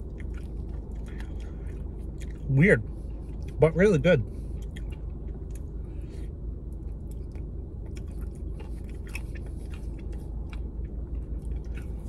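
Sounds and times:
person chewing ice cream: 0.0 - 3.7, 4.3 - 12.0
low hum inside a car: 0.0 - 12.0
wet mouth smacks and clicks: 4.6 - 5.7.

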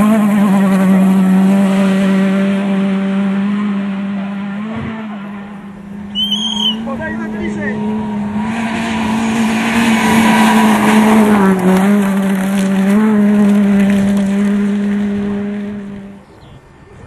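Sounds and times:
rally car engine at high revs: 0.0 - 6.1, 6.8 - 16.2.

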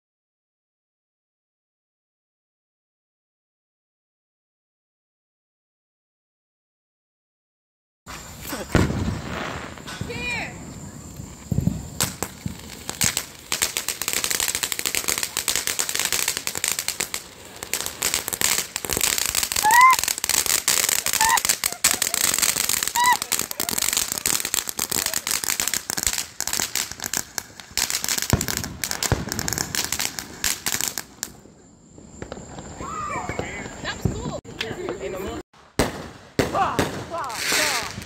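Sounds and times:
fireworks crackling: 8.1 - 38.0.

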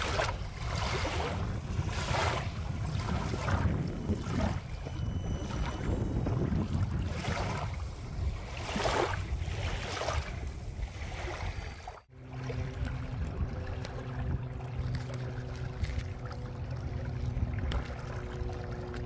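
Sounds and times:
small waves washing on sand: 0.0 - 4.6, 6.7 - 14.1
wind rumble on microphone: 0.0 - 19.0.

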